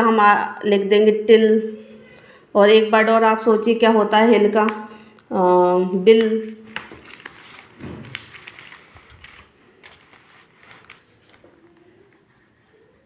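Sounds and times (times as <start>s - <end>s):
paper and pencil rustling: 6.1s - 13.0s.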